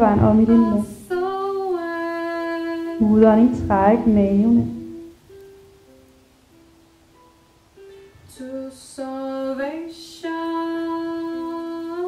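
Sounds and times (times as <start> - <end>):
woman singing long notes: 0.0 - 5.3, 8.3 - 12.0.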